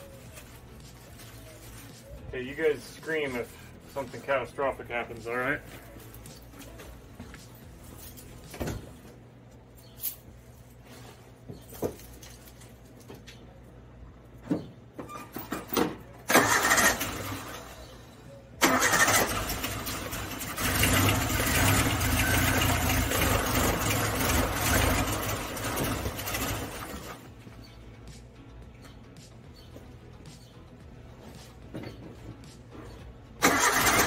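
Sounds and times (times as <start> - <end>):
car engine starting and running: 16.2 - 18.0, 18.6 - 27.3, 32.9 - 34.0
engine knocks: 19.8 - 27.2.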